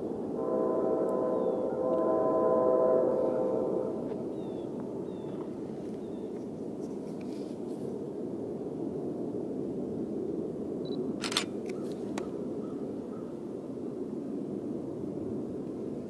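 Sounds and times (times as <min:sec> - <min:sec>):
passenger train rumbling past: 0:00.0 - 0:06.2
sharp clicks: 0:11.2 - 0:12.3.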